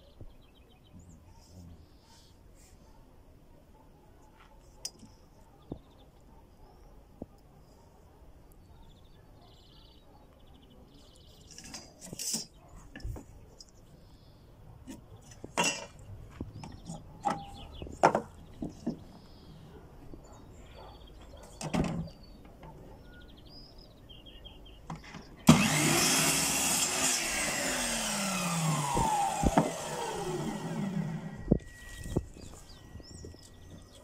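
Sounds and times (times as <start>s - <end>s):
electric miter saw running: 25.5s - 31.5s.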